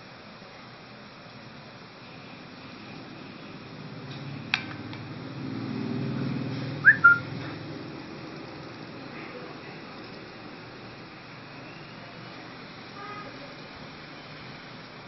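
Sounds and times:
whistle-like chirps: 6.8s - 7.3s.

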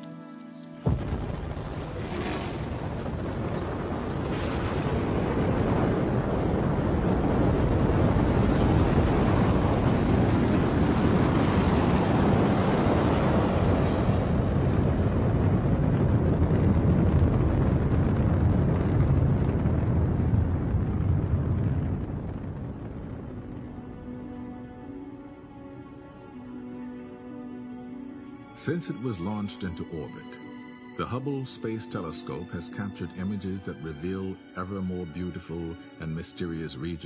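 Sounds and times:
rocket launch rumble: 0.8s - 24.9s.

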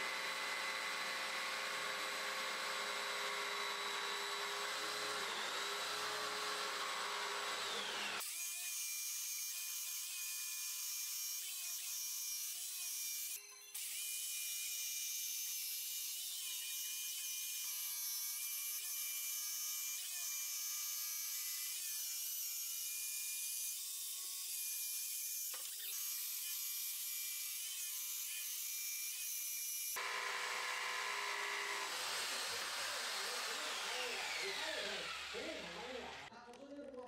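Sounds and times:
jigsaw motor whine: 0.0s - 12.5s, 16.3s - 36.3s.

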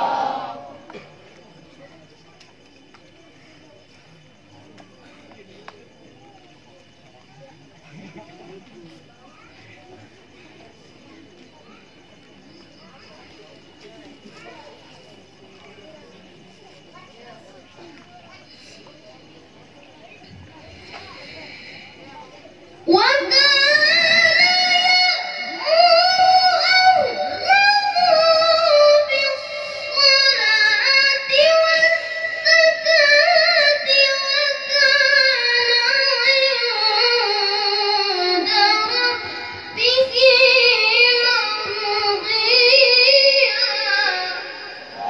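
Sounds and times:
boy chanting through microphone: 22.8s - 45.0s.

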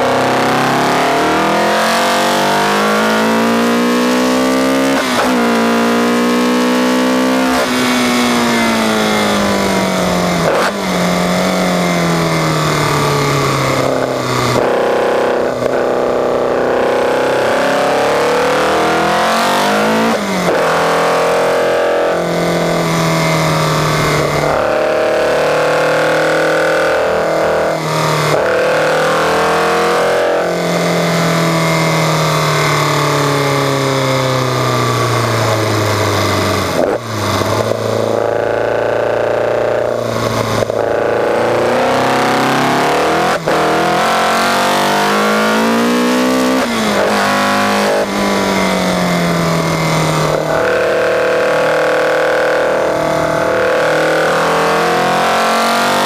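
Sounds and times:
car engine revving with gearchanges: 0.0s - 56.0s.

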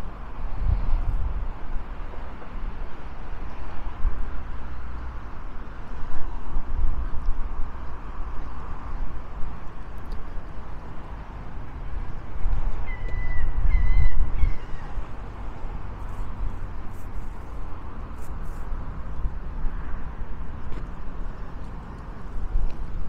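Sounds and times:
wind buffeting microphone: 0.0s - 23.0s
bird calls: 12.8s - 15.0s.

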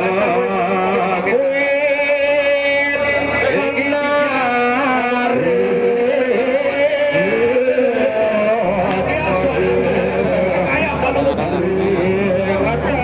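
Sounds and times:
voices singing devotional chant: 0.0s - 13.0s.

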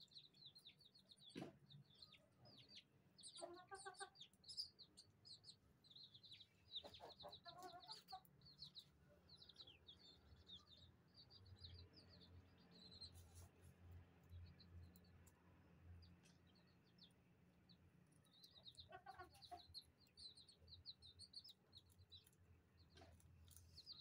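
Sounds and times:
chicks peeping: 0.0s - 15.3s, 16.0s - 24.0s
chicken clucking: 2.0s - 4.7s, 6.3s - 8.9s, 18.4s - 19.9s.

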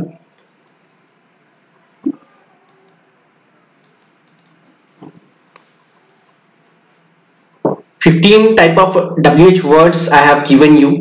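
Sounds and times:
computer keyboard clicks: 3.8s - 4.6s.

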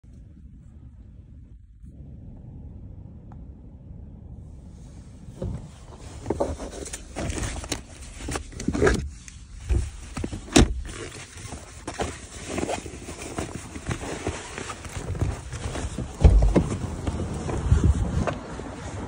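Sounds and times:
car cabin rumble: 0.2s - 19.0s
phone rustling against fabric: 5.2s - 18.8s.

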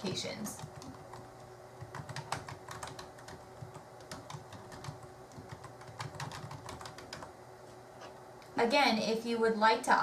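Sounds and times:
computer keyboard typing: 0.4s - 7.3s.

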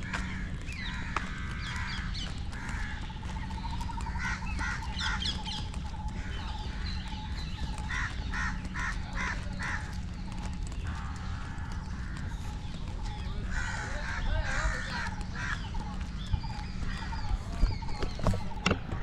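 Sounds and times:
crows cawing: 0.0s - 18.6s
low background rumble: 0.0s - 19.0s.

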